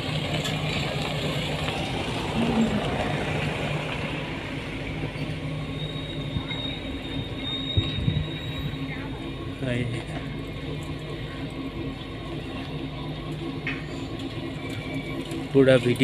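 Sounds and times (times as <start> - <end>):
machinery rumble and hum: 0.0 - 16.0.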